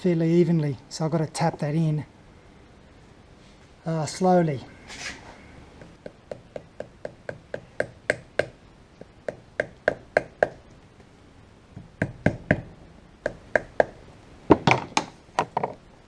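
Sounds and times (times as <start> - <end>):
rubber mallet tapping metal: 11.8 - 14.0.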